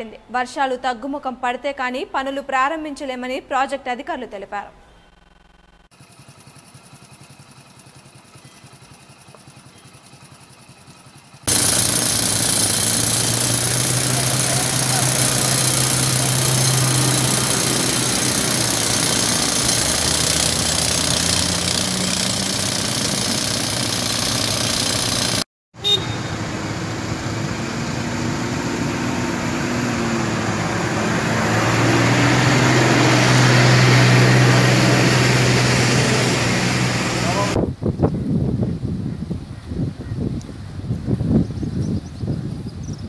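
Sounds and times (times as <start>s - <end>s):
engine running: 5.1s - 37.6s
broad noisy rush: 11.5s - 25.4s, 34.4s - 37.6s.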